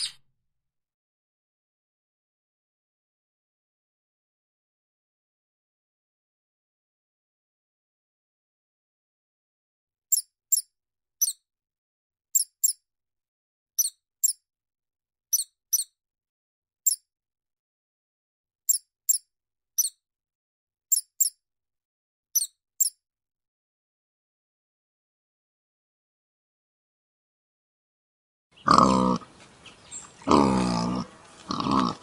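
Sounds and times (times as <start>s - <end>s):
mouse squeaking: 0.0s - 0.2s, 10.1s - 11.4s, 12.3s - 12.8s, 13.8s - 14.4s, 15.3s - 16.0s, 16.8s - 17.0s, 18.7s - 20.0s, 20.9s - 21.4s, 22.4s - 23.0s.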